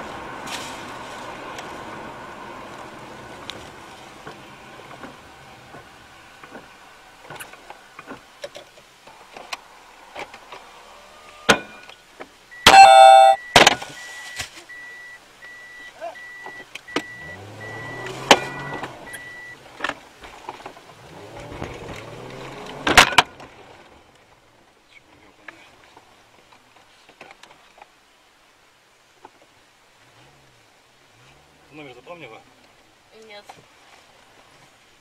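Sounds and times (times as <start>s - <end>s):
short beeps: 12.6s - 13.6s.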